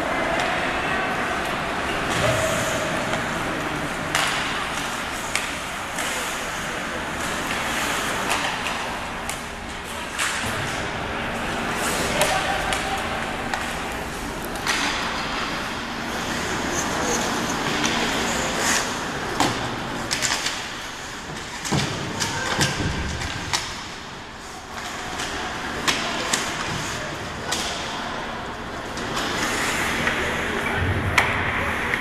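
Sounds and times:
noisy rink background: 0.0 - 32.0
puck hitting boards: 4.1 - 6.2
sticks striking puck: 4.1 - 6.3, 27.5 - 27.9.

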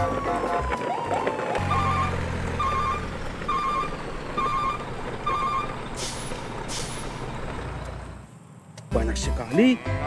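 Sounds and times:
electronic double-tone beeps: 1.6 - 5.8.

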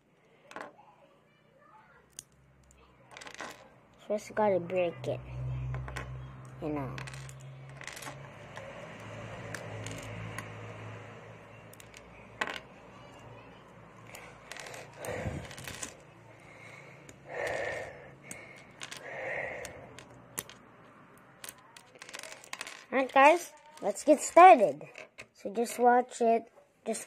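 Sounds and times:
plastic bricks clicking: 7.0 - 8.7, 9.5 - 10.5, 14.1 - 16.0, 17.4 - 20.6.

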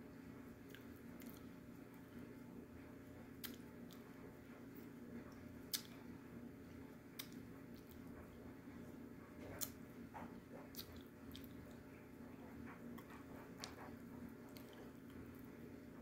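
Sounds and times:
person chewing crunchy food: 0.6 - 1.6, 3.3 - 4.1, 10.6 - 11.8, 14.4 - 15.5.

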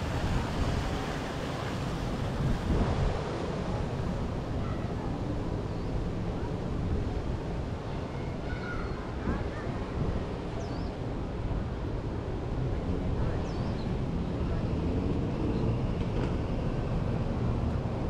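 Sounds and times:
ocean surf: 0.0 - 5.6
wind noise on microphone: 0.0 - 18.0.

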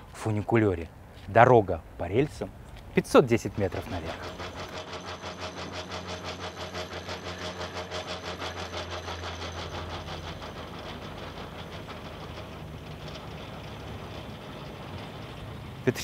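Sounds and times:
cable running over pulleys humming: 3.1 - 16.0
fast even clicking: 3.2 - 15.4.

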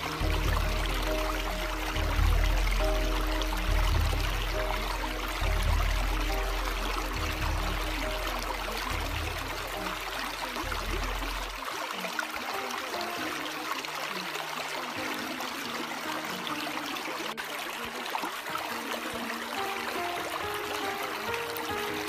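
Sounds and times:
deep bass note: 0.0 - 11.6
running water hiss: 0.0 - 22.0
soft held music notes: 0.0 - 22.0.

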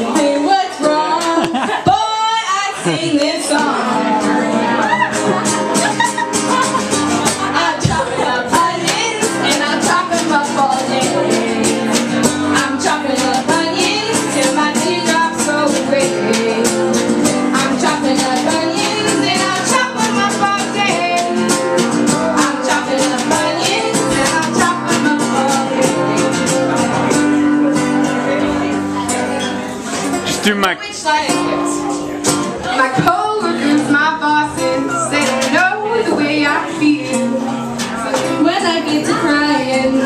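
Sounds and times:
women singing: 0.0 - 29.2, 30.8 - 40.0
strummed acoustic guitar: 0.0 - 40.0.

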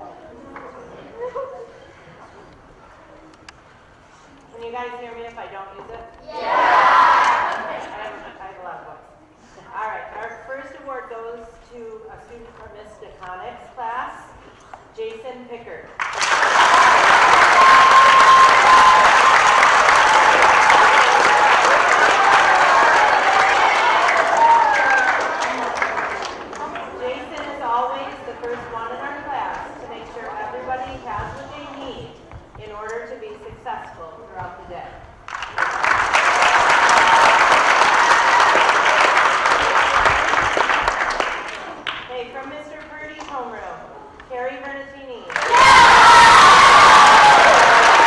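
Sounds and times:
audience applauding: 16.0 - 27.5, 35.3 - 42.0, 45.3 - 48.0
children clapping: 16.0 - 27.5, 35.3 - 42.1, 45.3 - 48.0.

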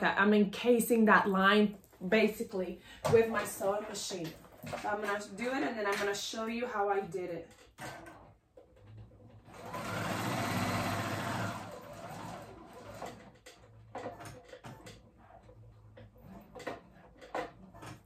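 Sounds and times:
sewing machine stitching: 7.6 - 18.0.

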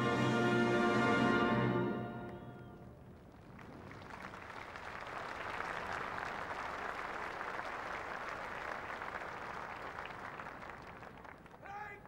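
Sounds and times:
large crowd applauding: 3.2 - 12.0.

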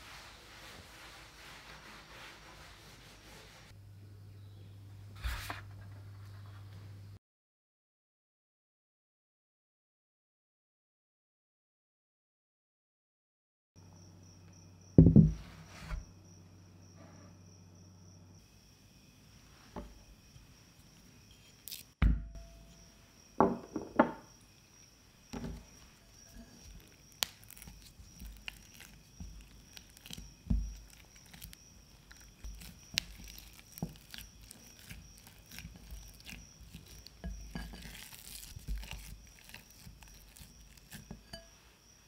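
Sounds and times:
sharp knocks: 15.0 - 15.4
spatula scraping glass bowl: 25.6 - 41.6.

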